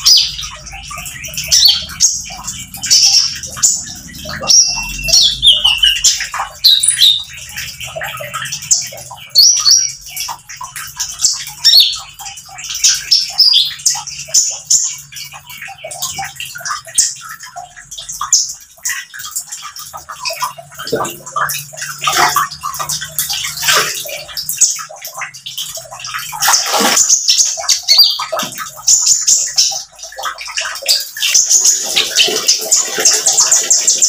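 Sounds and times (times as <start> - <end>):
sunbird singing: 0.0 - 7.3.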